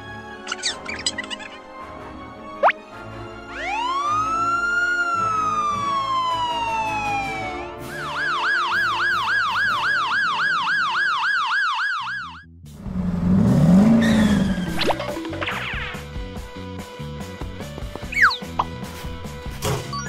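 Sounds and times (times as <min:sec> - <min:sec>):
police siren wailing and yelping: 0:03.5 - 0:12.4.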